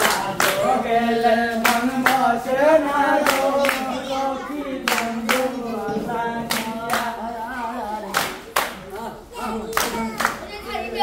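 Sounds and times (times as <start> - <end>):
hand claps: 0.0 - 0.7, 1.5 - 2.3, 3.2 - 3.9, 4.8 - 5.6, 6.5 - 7.2, 8.1 - 8.9, 9.7 - 10.4
group singing folk song: 0.0 - 11.0.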